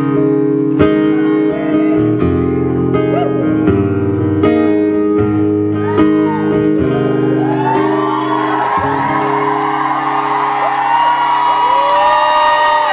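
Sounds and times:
acoustic guitar strumming: 0:00.0 - 0:11.2
audience whooping and cheering: 0:05.8 - 0:12.9.

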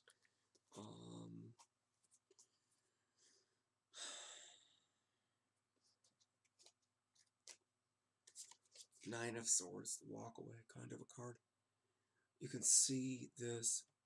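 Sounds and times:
person sighing: 0:00.8 - 0:01.4, 0:04.0 - 0:04.8
soft clicks of cards handled: 0:01.5 - 0:02.6, 0:05.8 - 0:07.6, 0:08.2 - 0:09.0.

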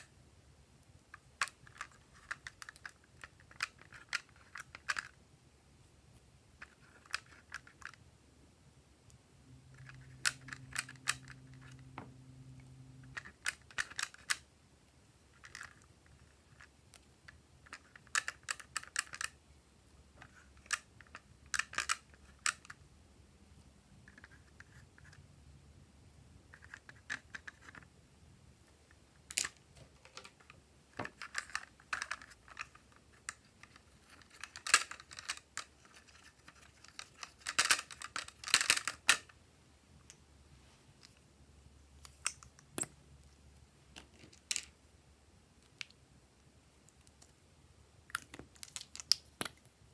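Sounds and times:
plastic palette handling: 0:29.2 - 0:39.3.

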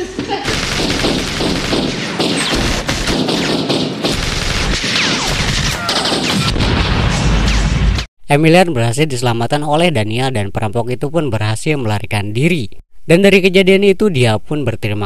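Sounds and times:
rapid automatic gunfire: 0:00.5 - 0:06.6
heavy blast: 0:00.5 - 0:08.1.

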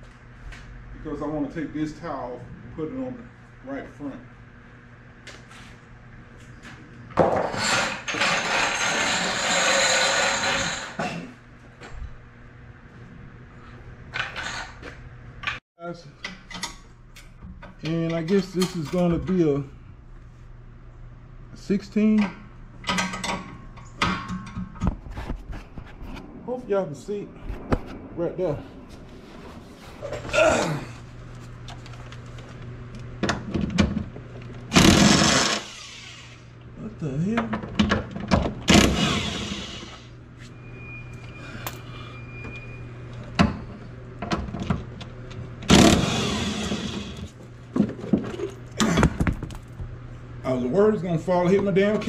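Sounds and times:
floor jack scraping on concrete: 0:07.2 - 0:11.3
power tool humming: 0:07.6 - 0:11.0, 0:34.7 - 0:36.5, 0:38.7 - 0:40.1, 0:45.7 - 0:47.3
man grunting: 0:30.3 - 0:31.0.

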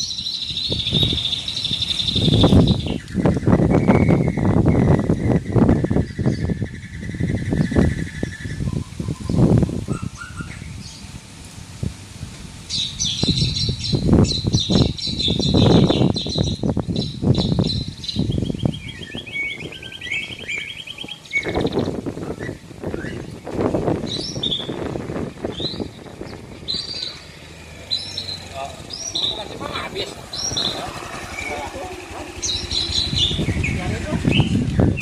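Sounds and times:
low rumbling noise: 0:00.0 - 0:35.0.

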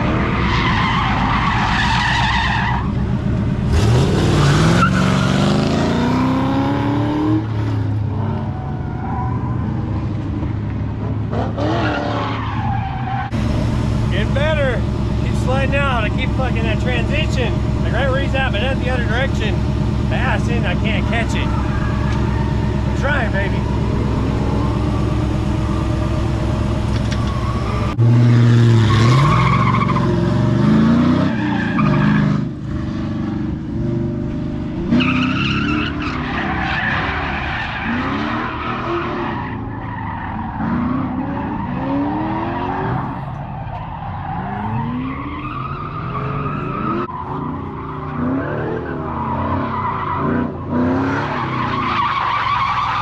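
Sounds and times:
truck engine idling and revving: 0:00.0 - 0:53.0
tyres squealing on concrete: 0:00.1 - 0:02.9, 0:04.3 - 0:05.4, 0:14.1 - 0:25.1, 0:28.9 - 0:30.1, 0:35.0 - 0:50.4, 0:51.2 - 0:53.0.

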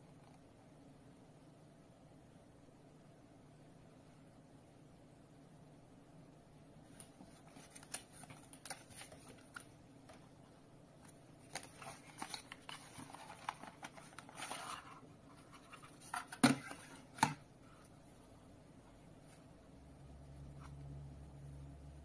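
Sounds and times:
plastic and cardboard rustling: 0:06.9 - 0:17.9.

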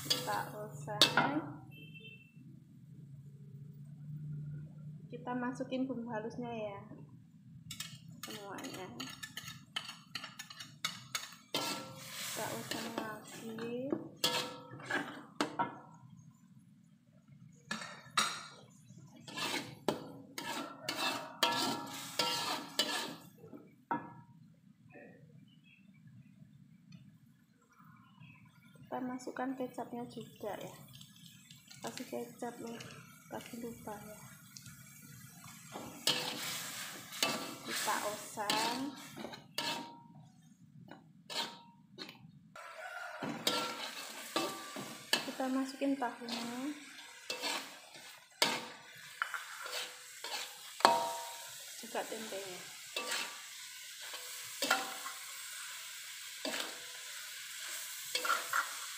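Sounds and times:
metal spatula scraping a wok: 0:00.0 - 0:01.3, 0:07.7 - 0:15.6, 0:17.7 - 0:23.4, 0:35.0 - 0:40.1, 0:41.3 - 0:58.9
light sizzle: 0:00.0 - 0:05.6, 0:06.2 - 0:24.6, 0:25.4 - 0:58.9.

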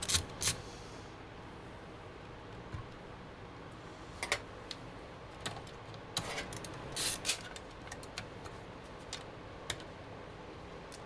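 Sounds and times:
light clicks and rattles of parts: 0:04.2 - 0:09.9.

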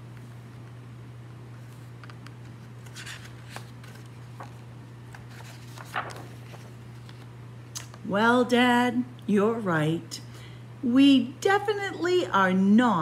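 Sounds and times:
low electrical hum: 0:00.0 - 0:13.0
book pages rustling: 0:01.5 - 0:07.3.

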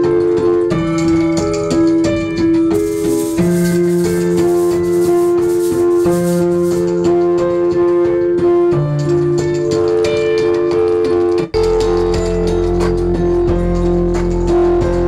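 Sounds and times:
shaker rattling: 0:02.8 - 0:07.0.

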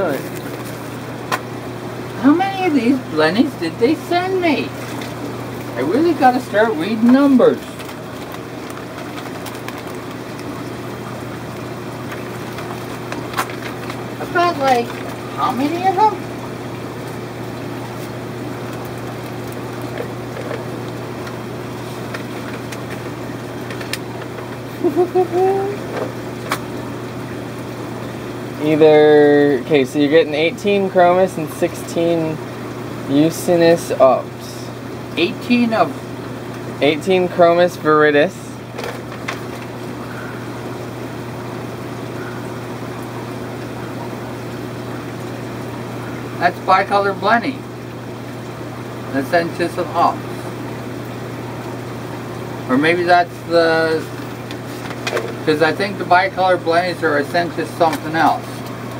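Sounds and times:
aquarium pumps humming: 0:00.0 - 0:58.9
plastic bag rustling: 0:07.0 - 0:11.2, 0:12.0 - 0:15.3, 0:17.9 - 0:24.7.

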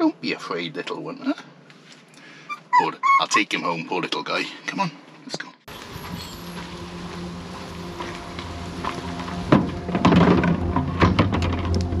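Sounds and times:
steady low hum: 0:05.7 - 0:12.0
plastic jugs knocking: 0:09.4 - 0:12.0.

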